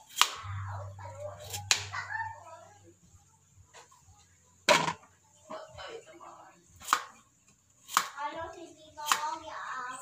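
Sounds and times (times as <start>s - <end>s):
knife chopping on cutting board: 6.8s - 7.2s, 7.9s - 8.2s.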